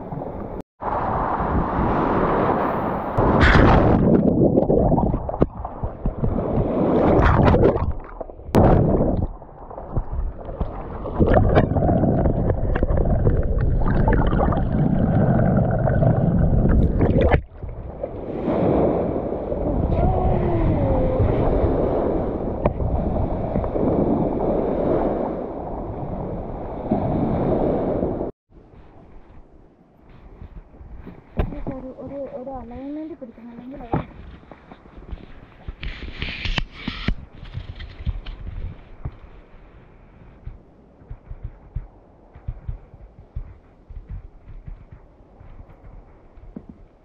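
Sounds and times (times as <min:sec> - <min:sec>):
water splashes: 0:00.0 - 0:25.2
muffled water sloshing: 0:03.2 - 0:25.7.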